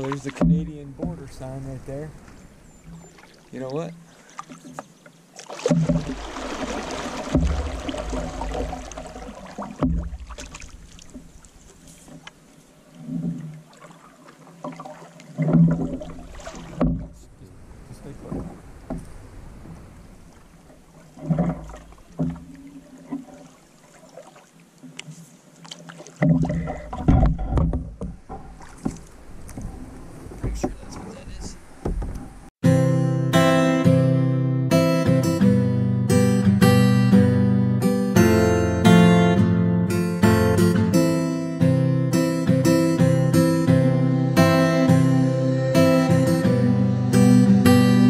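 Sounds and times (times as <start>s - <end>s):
canoe paddles in water: 0.0s - 32.5s.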